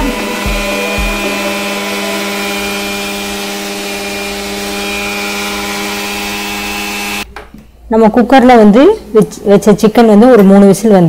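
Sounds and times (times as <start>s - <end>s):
mixer grinder grinding paste: 0.0s - 7.3s.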